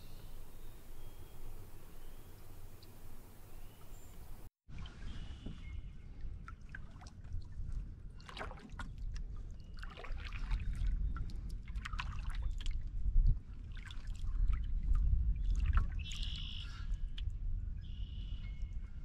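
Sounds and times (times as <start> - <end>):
wind rumble on microphone: 0.0 - 19.0
water splashing from paddling: 3.6 - 12.9.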